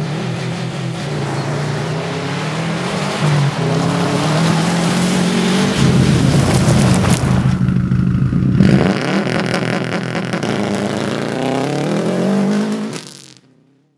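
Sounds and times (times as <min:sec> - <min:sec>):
rally car engine passing by: 0:00.0 - 0:13.1.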